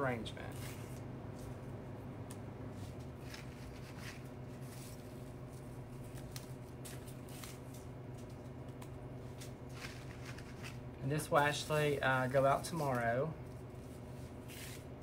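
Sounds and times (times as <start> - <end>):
steady low hum: 0.0 - 15.0
plant stems rustling and crackling: 2.8 - 13.1.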